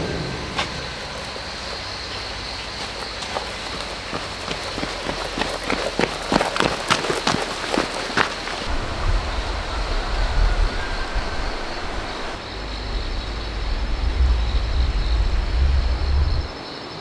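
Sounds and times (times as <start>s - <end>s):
wind buffeting microphone: 4.0s - 16.6s.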